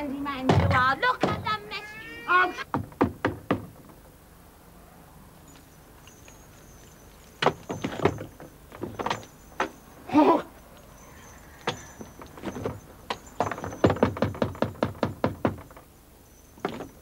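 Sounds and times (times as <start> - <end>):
person crying out: 1.6 - 2.6.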